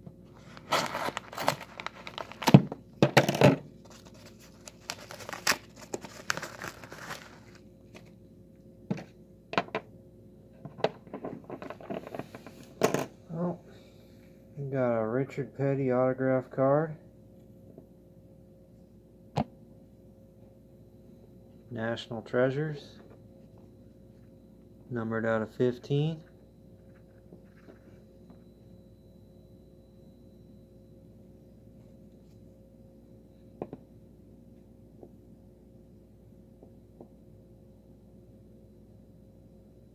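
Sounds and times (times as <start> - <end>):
faint room hum: 0.0 - 39.9
paper envelope rustling: 0.4 - 2.6, 3.8 - 8.2.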